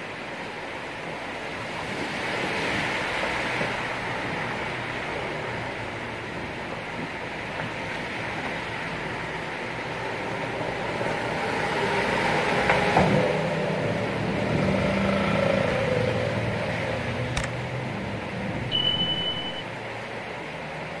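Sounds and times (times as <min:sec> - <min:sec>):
heavy rain: 0:00.0 - 0:21.0
truck driving through water: 0:00.8 - 0:06.6, 0:07.2 - 0:21.0
sharp click: 0:17.3 - 0:17.6
high beep: 0:18.7 - 0:19.7.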